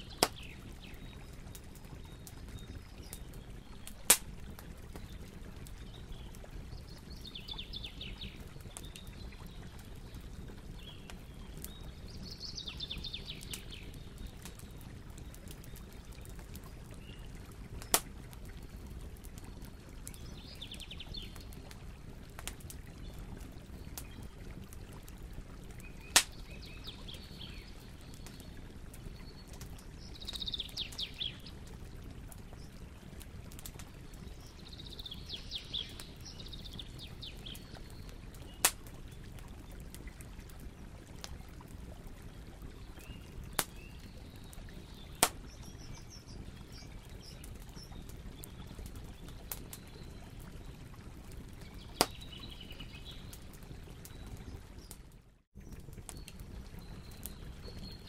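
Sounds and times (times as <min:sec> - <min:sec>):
fire crackling and popping: 0:00.0 - 0:58.0
bonfire flames rushing: 0:00.1 - 0:07.2.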